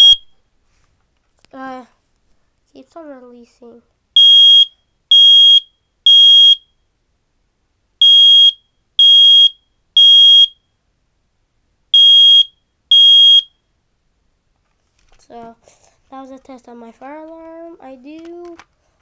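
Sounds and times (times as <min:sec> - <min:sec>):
smoke alarm beeping: 0:00.0 - 0:00.3, 0:04.2 - 0:06.8, 0:08.0 - 0:10.6, 0:11.9 - 0:13.6.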